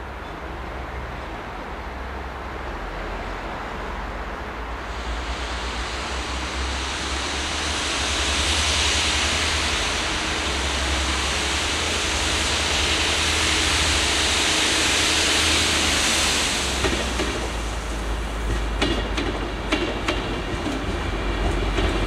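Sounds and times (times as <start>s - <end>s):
high-pressure water jets hissing: 4.9s - 20.5s.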